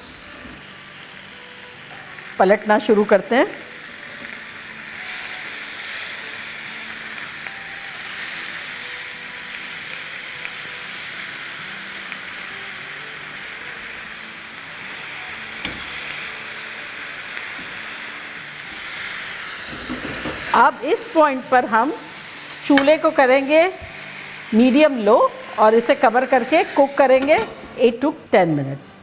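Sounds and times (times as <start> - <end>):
chicken sizzling in oil: 0.0 - 27.2.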